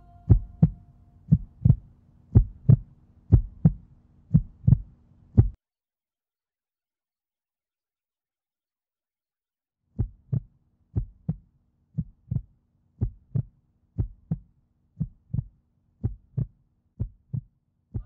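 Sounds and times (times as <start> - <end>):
faint low hum: 0.0 - 5.5
heartbeat thumps: 0.0 - 5.6, 10.0 - 11.4, 12.0 - 18.0.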